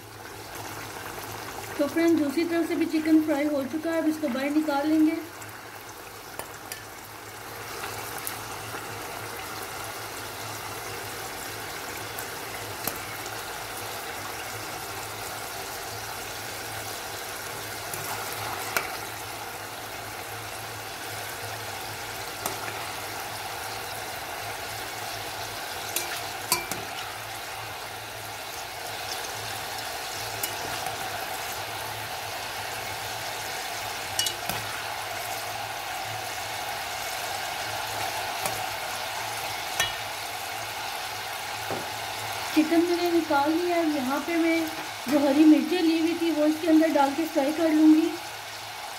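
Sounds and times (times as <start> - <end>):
oil sizzling and bubbling: 0.0 - 48.9
metal tongs clicking: 34.2 - 34.5.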